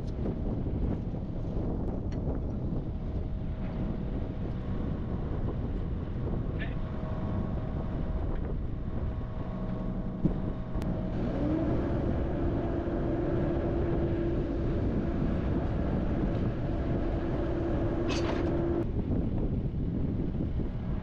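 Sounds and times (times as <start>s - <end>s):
excavator engine running: 0.0s - 19.1s
whine rising in pitch: 6.8s - 18.9s.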